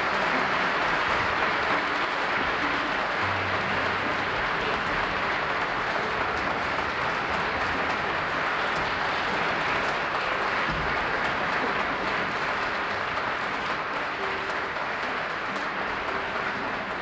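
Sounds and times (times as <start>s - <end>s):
audience applauding: 0.0s - 17.0s.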